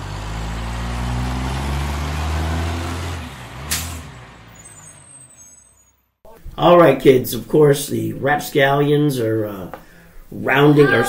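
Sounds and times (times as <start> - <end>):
truck engine rumbling: 0.0 - 6.7.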